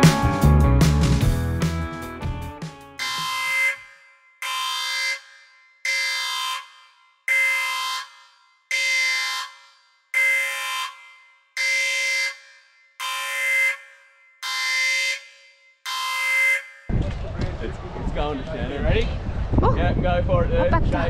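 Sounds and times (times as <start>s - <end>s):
electronic alarm beep: 3.0s - 16.9s.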